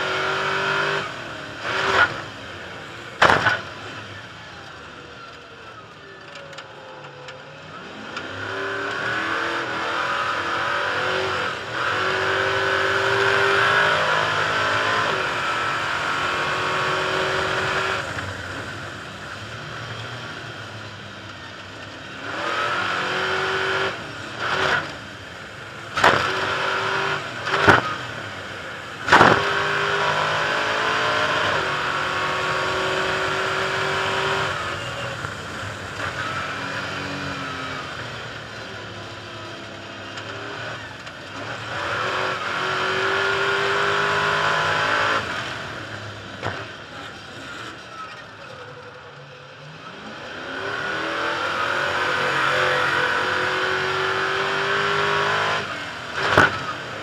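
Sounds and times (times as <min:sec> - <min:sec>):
racing truck engine revving: 0:00.0 - 0:57.0
sharp bangs: 0:03.2 - 0:03.8, 0:29.0 - 0:29.6.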